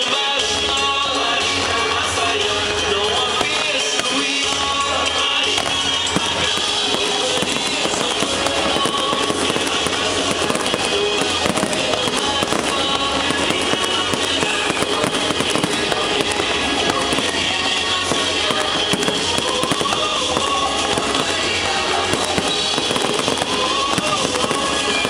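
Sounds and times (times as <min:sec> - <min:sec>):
fireworks bursting and crackling: 0:00.0 - 0:25.0
music playing: 0:00.0 - 0:25.0.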